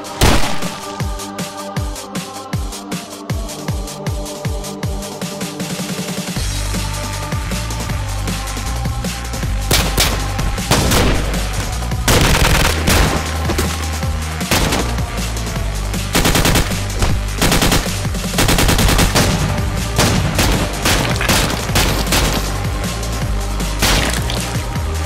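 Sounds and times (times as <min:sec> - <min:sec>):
background music: 0:00.0 - 0:25.0
automatic gunfire bursts: 0:12.1 - 0:13.3, 0:16.2 - 0:22.7.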